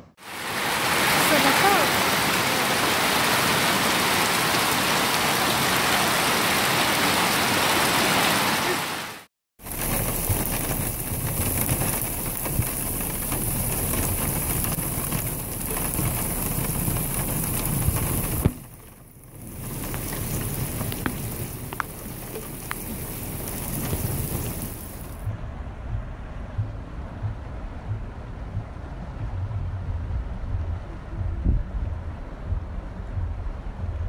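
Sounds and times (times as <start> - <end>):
hail and rain on wet ground: 0.2 - 25.2.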